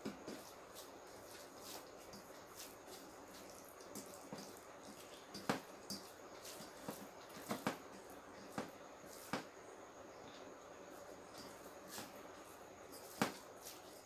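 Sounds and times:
fingers mixing rice wet clicks: 0.2s - 9.4s.

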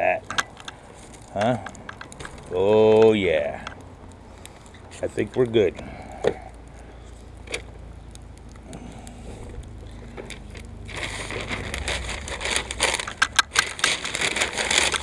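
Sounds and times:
paper rustling and crinkling: 10.0s - 15.0s.

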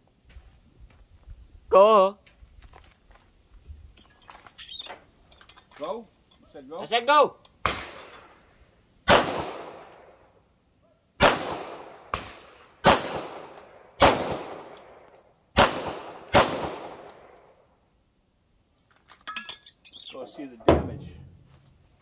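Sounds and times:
pistol shots with echo: 9.1s - 10.2s, 11.2s - 17.4s.

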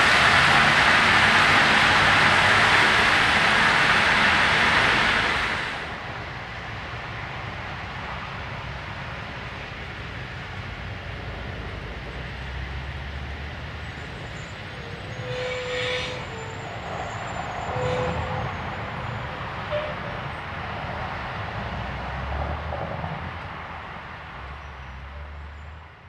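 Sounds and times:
train wheels rumbling on track: 0.0s - 26.0s
wheels squealing: 13.9s - 20.4s.

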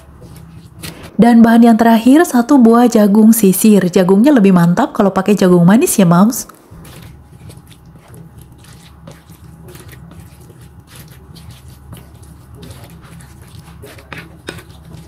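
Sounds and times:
batter squishing: 0.0s - 1.2s, 6.6s - 15.0s
steady low hum: 0.0s - 15.0s.

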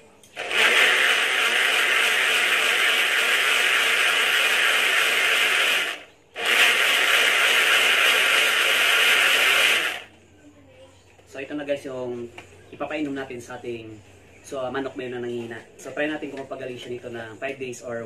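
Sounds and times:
blender whirring: 0.3s - 10.1s.

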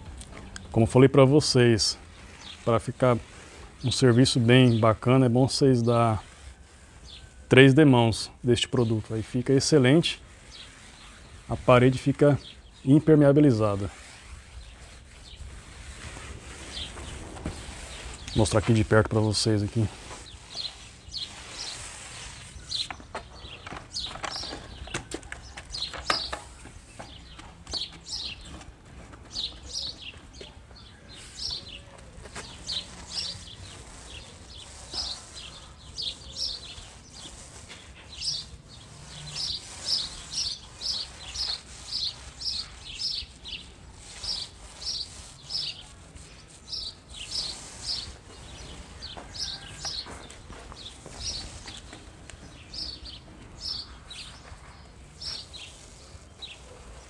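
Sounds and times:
paint roller squeaking: 0.3s - 57.0s.

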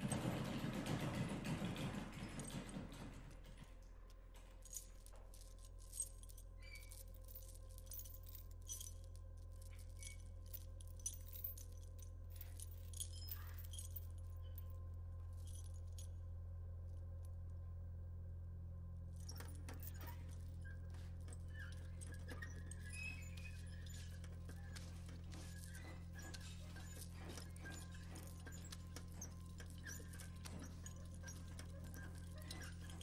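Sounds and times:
steady low hum: 3.6s - 33.0s
metal chain clinking: 4.4s - 16.2s, 19.2s - 33.0s.

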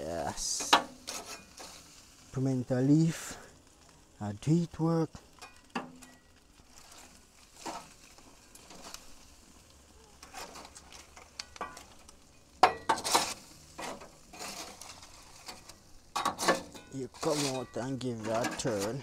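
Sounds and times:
chicken sizzling on a grill: 0.0s - 19.0s
clattering scrape: 0.6s - 2.0s, 5.4s - 8.0s, 10.2s - 11.9s, 12.7s - 19.0s.

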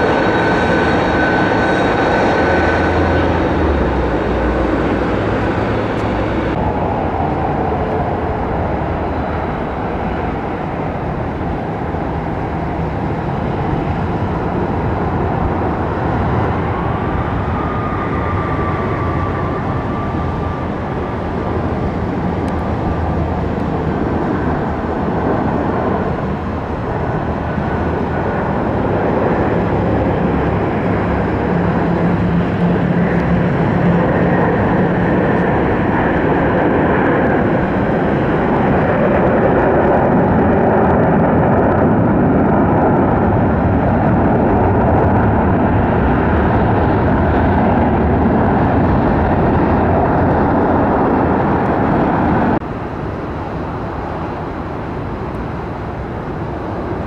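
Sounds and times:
jet engines rushing: 0.0s - 57.0s.

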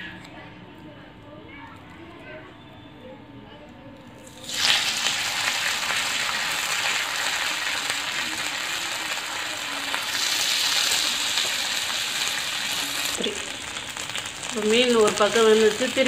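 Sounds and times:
fish sizzling in oil: 4.2s - 16.0s.

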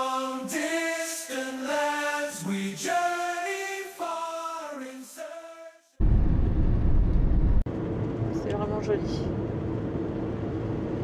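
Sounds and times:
a cappella choir chanting: 0.0s - 6.0s.

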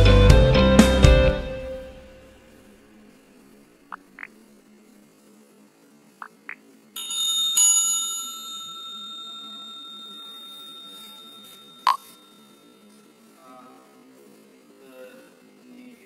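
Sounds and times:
bell ringing: 7.0s - 13.2s.

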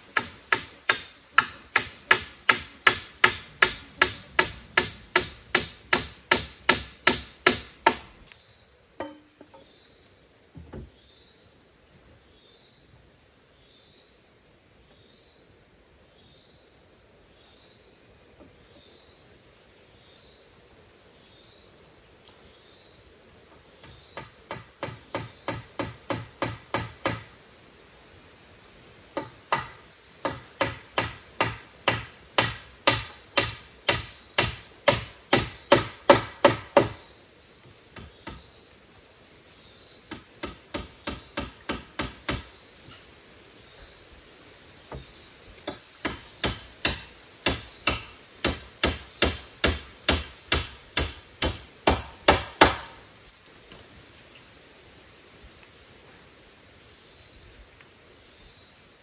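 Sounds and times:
hammer striking nails into wood: 0.1s - 8.1s, 23.8s - 27.3s, 29.2s - 37.0s, 40.1s - 42.5s, 45.7s - 53.0s.

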